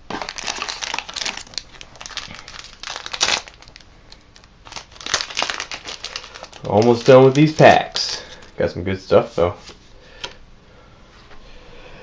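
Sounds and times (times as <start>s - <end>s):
foil wrappers crinkling: 0.1s - 8.7s.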